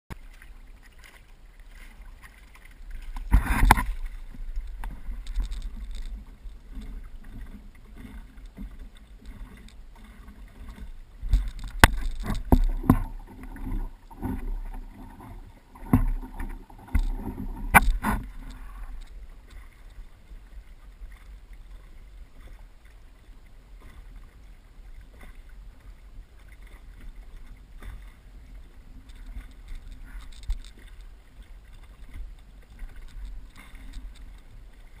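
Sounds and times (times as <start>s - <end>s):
water slapping against wooden hull: 0.1s - 21.4s.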